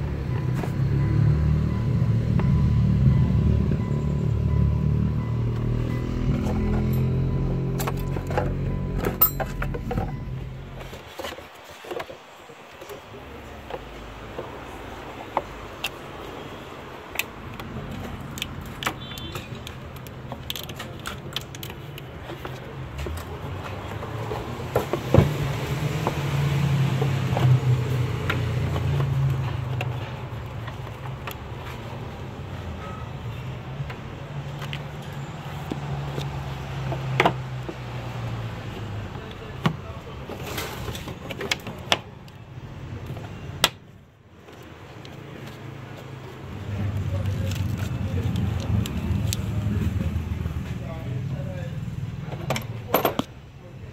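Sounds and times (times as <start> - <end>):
metallic clicks and clinks: 9.2 - 9.9.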